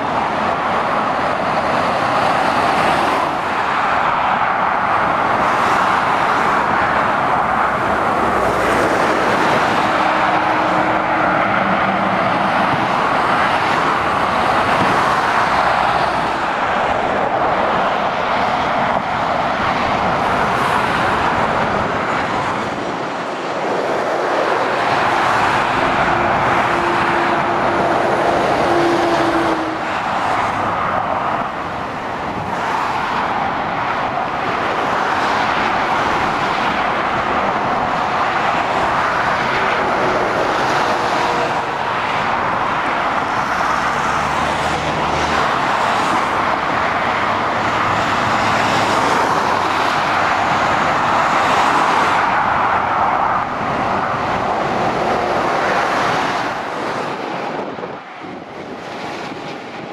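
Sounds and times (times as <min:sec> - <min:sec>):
motorway traffic roar: 0:00.0 - 0:59.9.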